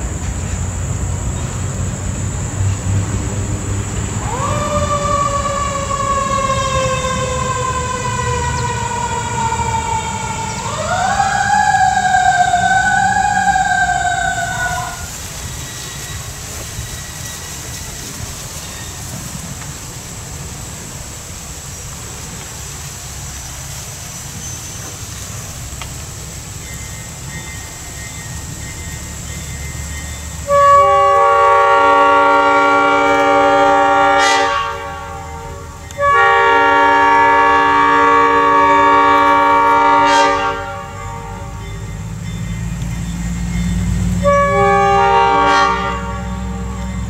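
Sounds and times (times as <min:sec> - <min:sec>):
locomotive air horn: 0:04.2 - 0:16.6, 0:30.2 - 0:42.7, 0:43.7 - 0:47.0.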